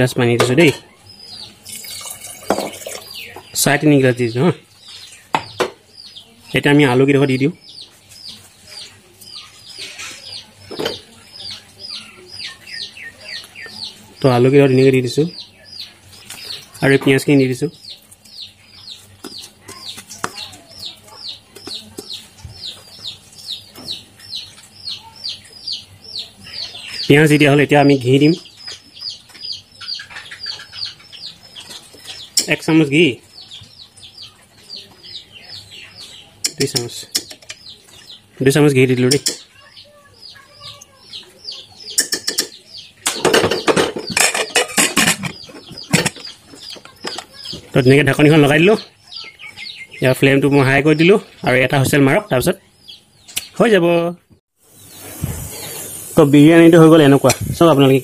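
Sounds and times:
small bird chirping: 0.0 - 58.0
metal lid clattering and scraping: 43.1 - 46.3.

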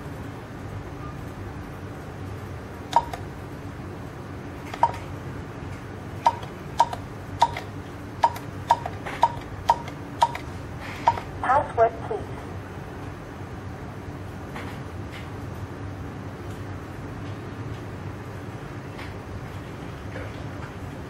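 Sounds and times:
keypad beeps: 2.9 - 3.2, 4.7 - 5.0, 6.2 - 11.3.

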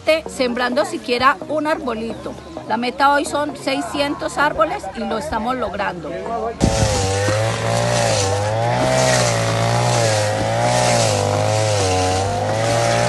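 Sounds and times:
small engine whining at high revs: 6.6 - 13.0.

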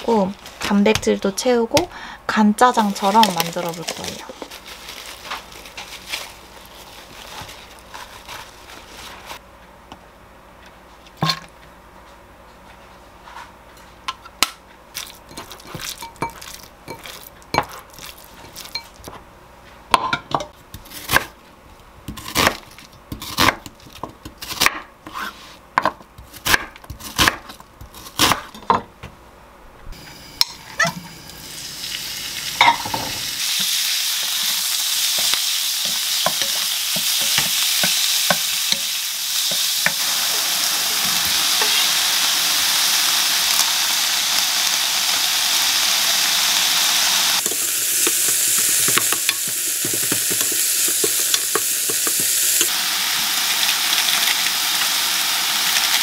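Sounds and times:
knife chopping on wooden board: 25.8 - 27.5, 28.2 - 28.5
meat sizzling in a pan: 30.0 - 56.0.

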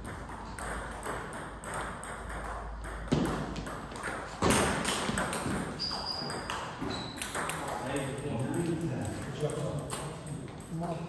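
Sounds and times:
table tennis ball clicking: 4.8 - 10.8.

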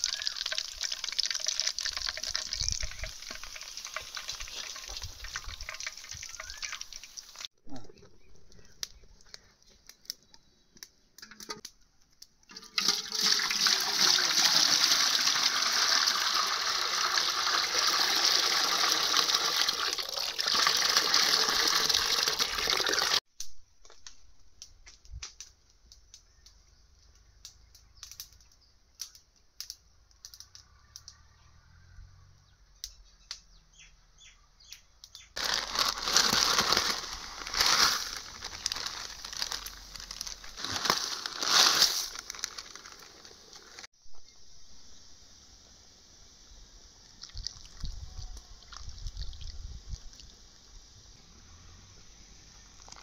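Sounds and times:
water pouring: 0.0 - 7.5, 12.5 - 23.2, 35.4 - 43.9, 47.2 - 48.0, 48.6 - 50.3, 52.8 - 53.0.

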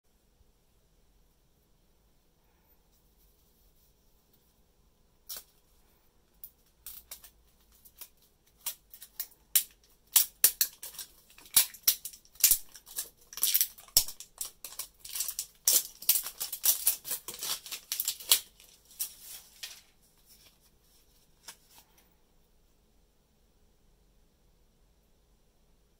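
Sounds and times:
plastic wrap crinkling and tearing: 6.4 - 22.0.

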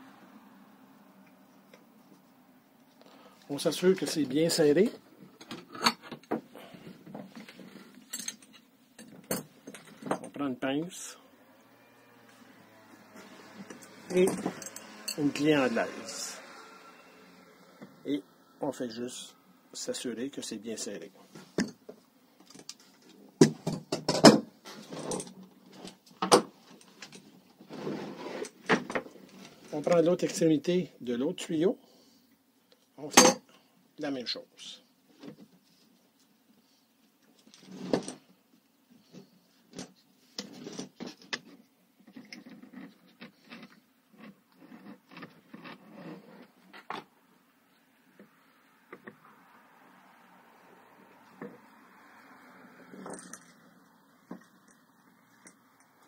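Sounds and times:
metal tools clinking and knocking: 7.4 - 10.4, 13.5 - 15.5, 53.0 - 53.7
hose rustling scrapes: 11.8 - 17.8, 26.8 - 29.9.

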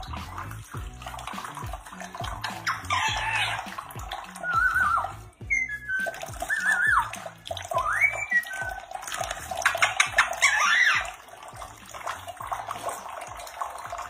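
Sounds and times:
bird splashing and flapping wings: 0.0 - 5.2, 5.8 - 14.0
tap water running into sink: 0.0 - 14.0
parakeet whistled calls: 2.4 - 3.7, 4.3 - 11.1.

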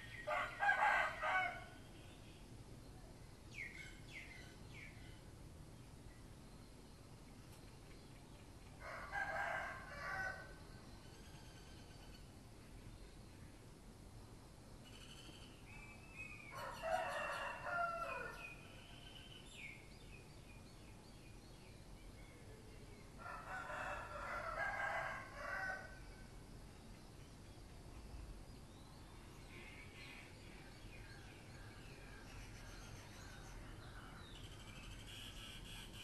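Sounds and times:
rooster crowing: 0.3 - 1.8, 8.8 - 10.6, 16.5 - 18.5, 23.2 - 26.0.

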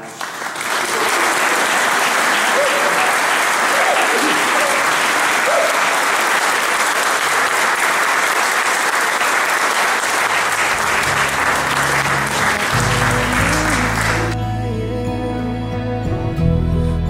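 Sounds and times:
crowd applauding: 0.0 - 14.4
music: 10.5 - 17.0.

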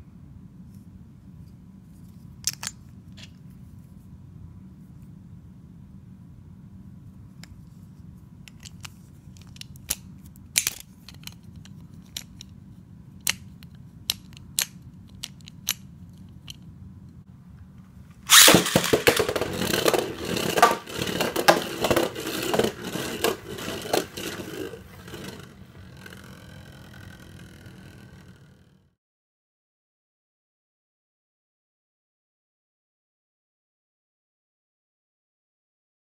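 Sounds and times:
plastic clicks: 18.3 - 28.1
spinning top clattering in stadium: 18.3 - 28.5.

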